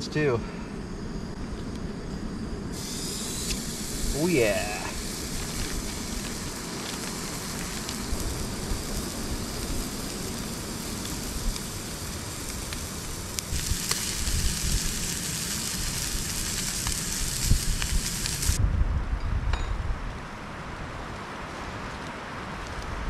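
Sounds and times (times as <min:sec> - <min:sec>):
meat sizzling in a pan: 0:02.8 - 0:18.6.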